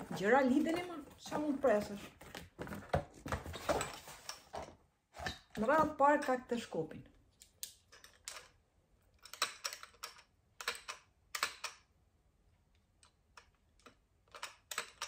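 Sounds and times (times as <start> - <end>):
plastic mop handle clicks and rattles: 9.2 - 11.8, 13.3 - 15.0.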